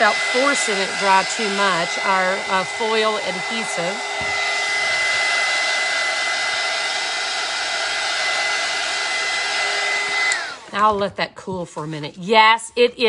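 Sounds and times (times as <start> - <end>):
hot-air tool blowing with whine: 0.0 - 11.0.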